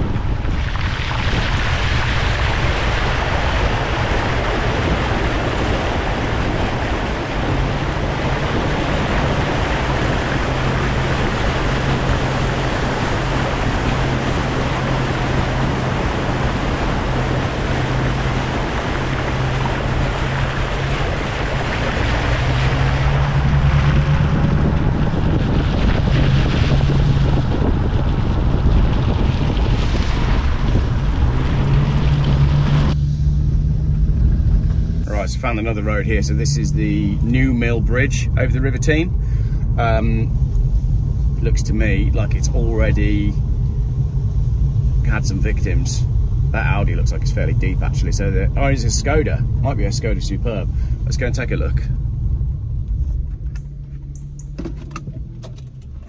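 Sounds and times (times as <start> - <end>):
water rushing and splashing: 0.0 - 40.4
car engine drone: 0.0 - 56.0.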